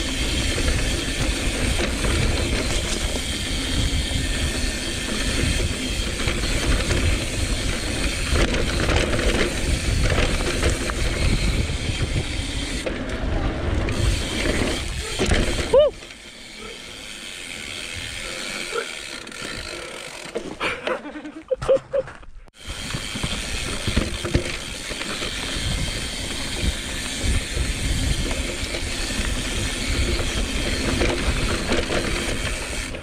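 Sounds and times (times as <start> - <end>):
wind rumbling on microphone: 0.0 - 16.0, 22.6 - 33.0
bike rattling over bumps: 0.0 - 20.9, 22.6 - 33.0
bike tyres on dirt: 0.0 - 33.0.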